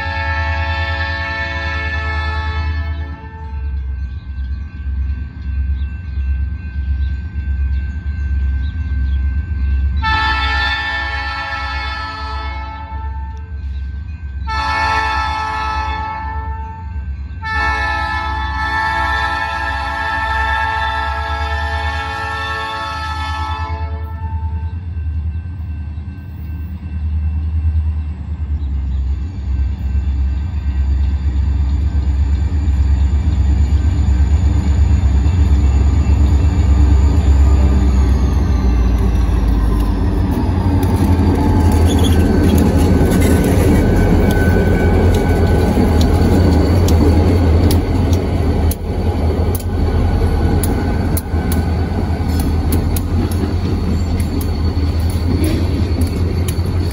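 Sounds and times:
train horn blast: 0.0s - 3.8s, 10.0s - 13.5s, 14.4s - 24.8s
locomotive engine rumble: 16.8s - 56.9s
wheels clicking on rail: 17.2s - 56.9s.

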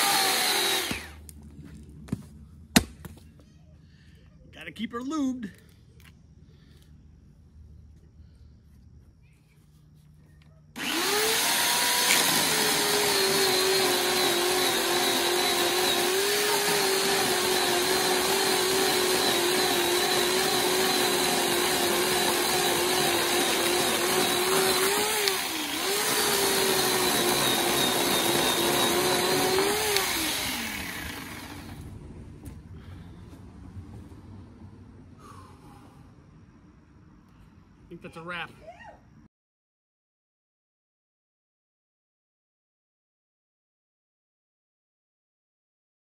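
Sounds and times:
electric chainsaw motor whining: 0.0s - 1.3s, 10.8s - 31.8s.

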